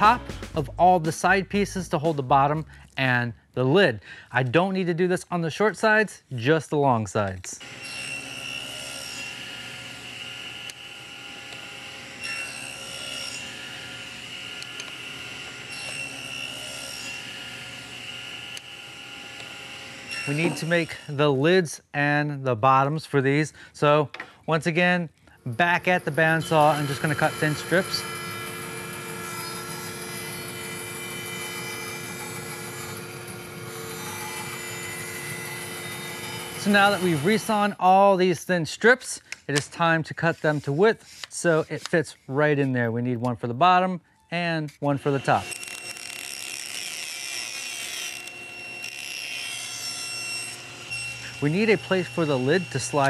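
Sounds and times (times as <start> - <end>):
saw motor whine: 7.6 - 21.2, 25.5 - 37.7, 45.0 - 53.0
table saw cutting wood: 7.6 - 21.6, 25.4 - 37.9, 39.6 - 42.0, 44.7 - 53.0.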